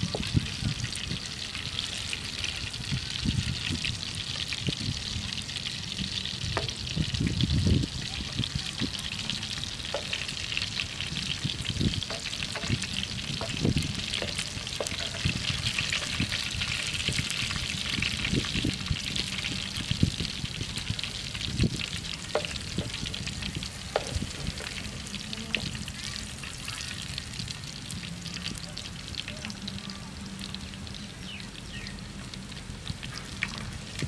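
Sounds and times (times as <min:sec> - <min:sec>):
meat sizzling in frying pan: 0:00.0 - 0:34.0
spatula scraping and tapping pan: 0:12.1 - 0:17.0.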